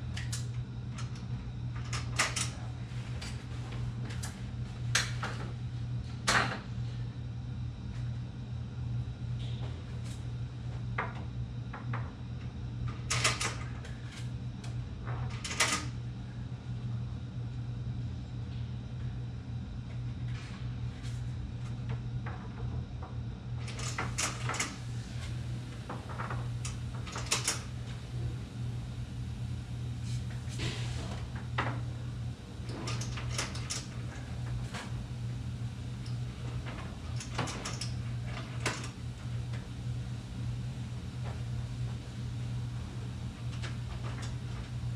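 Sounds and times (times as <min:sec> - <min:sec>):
steady low hum: 0:00.0 - 0:44.9.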